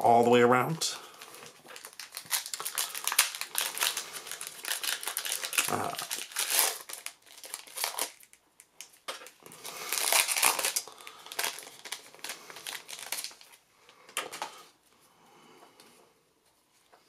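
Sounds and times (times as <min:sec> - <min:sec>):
foil wrapper crinkling: 0:01.0 - 0:14.6.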